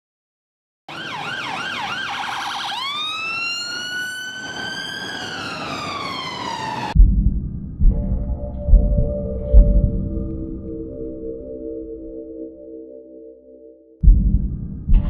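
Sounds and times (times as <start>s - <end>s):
emergency vehicle siren: 0.9s - 7.0s
loud deep boom: 7.0s - 10.2s.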